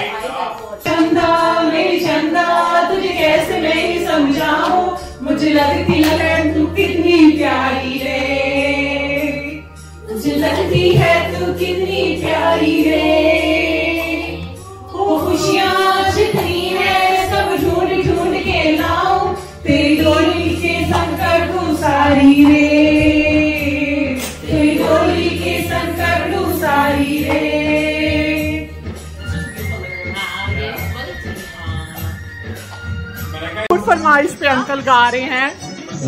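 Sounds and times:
karaoke backing track: 0:00.0 - 0:36.0.

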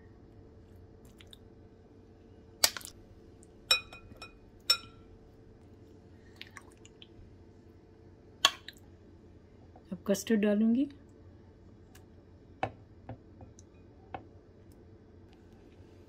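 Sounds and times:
metal spoon clinking on glass bowl: 0:03.7 - 0:05.0.

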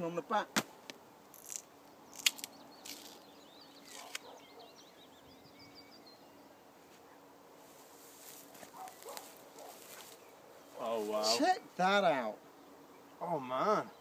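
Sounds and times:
songbird warbling: 0:02.1 - 0:07.2.

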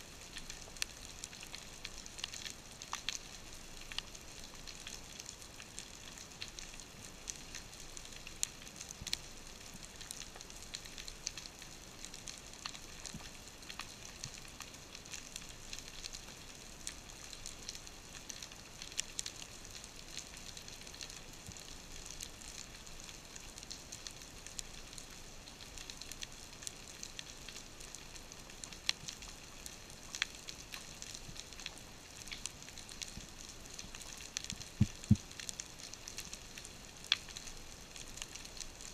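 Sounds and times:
sharp clicks and crackles: 0:00.2 - 0:22.8, 0:23.5 - 0:38.9.

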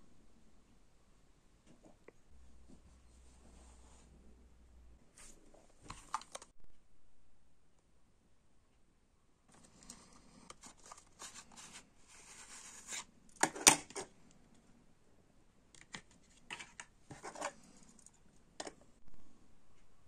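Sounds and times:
light clicks of cassette handling: 0:05.9 - 0:06.5, 0:09.5 - 0:11.8, 0:15.7 - 0:18.8
cardboard sleeve scraping and rustling: 0:09.6 - 0:13.1.

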